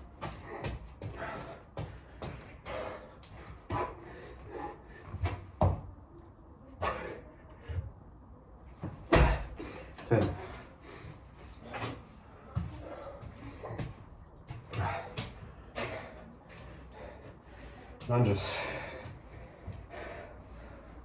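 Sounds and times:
hard breathing: 0.0s - 5.5s, 6.7s - 8.1s, 9.3s - 21.0s.

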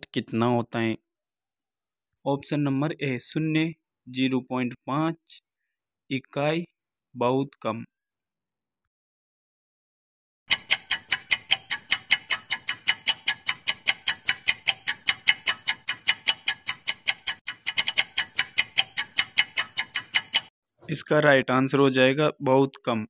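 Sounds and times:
clock ticking rapidly: 10.5s - 20.5s.

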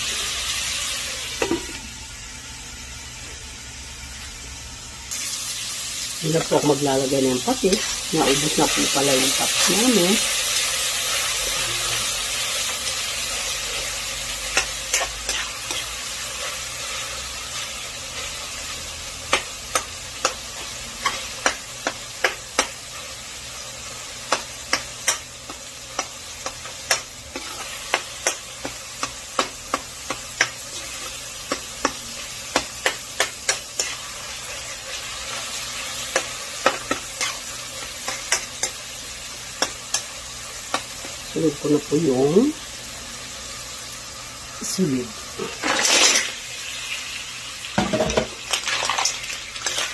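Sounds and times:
vegetables sizzling in oil: 0.0s - 49.9s
metal spoon scraping pan: 13.7s - 16.6s, 24.3s - 35.4s, 36.0s - 38.8s.

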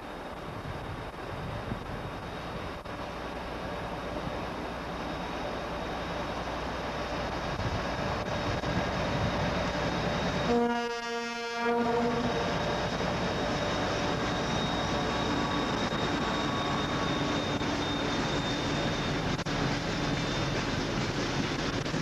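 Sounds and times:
freight train rumbling past: 0.0s - 22.0s
locomotive horn: 10.5s - 12.5s.

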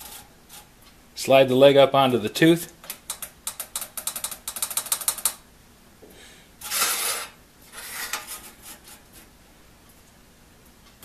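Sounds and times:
metal scraping on saw blade: 6.6s - 9.1s.

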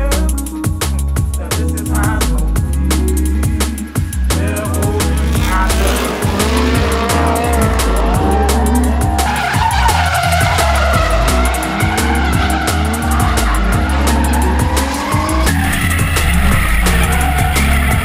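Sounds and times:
electronic music with heavy beat: 0.0s - 18.0s
engines revving: 1.7s - 18.0s
tyres squealing: 5.0s - 18.0s.

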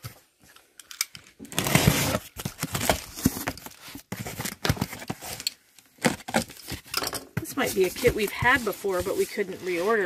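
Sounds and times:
cardboard flaps scraping and rustling: 1.5s - 5.4s.

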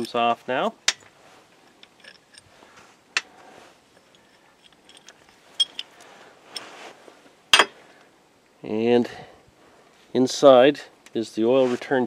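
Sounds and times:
faint handling noise: 0.0s - 8.2s
metal clicks and clinks: 0.9s - 2.5s, 4.0s - 6.7s.

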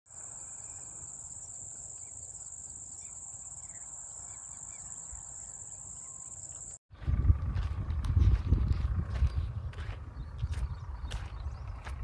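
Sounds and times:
insects trilling: 0.1s - 6.8s
low rumble: 6.9s - 12.0s.

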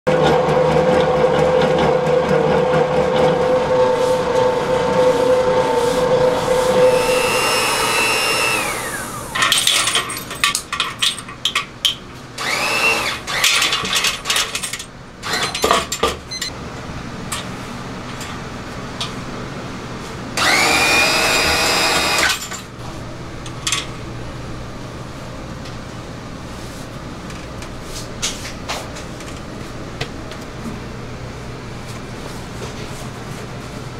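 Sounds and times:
dough mixer motor running: 0.1s - 5.7s, 6.7s - 9.4s, 12.4s - 13.4s, 20.4s - 22.2s
motor whine: 3.1s - 9.4s, 12.4s - 13.2s, 20.4s - 22.3s.

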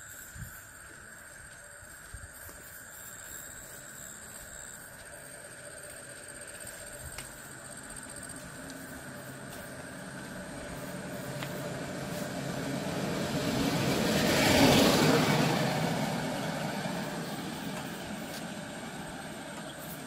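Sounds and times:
vehicle passing by: 8.0s - 20.0s.

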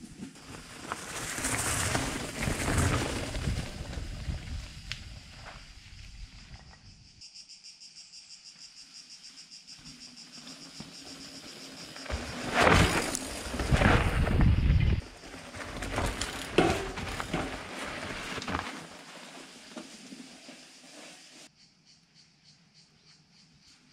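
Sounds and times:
mountain bike rattling past: 0.0s - 6.7s, 9.8s - 21.5s
insects chirring: 0.0s - 23.9s
tyres crunching on dirt: 0.1s - 6.2s, 10.6s - 21.2s.

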